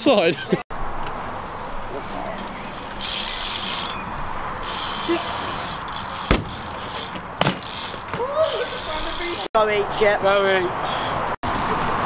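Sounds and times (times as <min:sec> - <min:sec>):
bike knocking on ramp: 0:06.2 - 0:08.3.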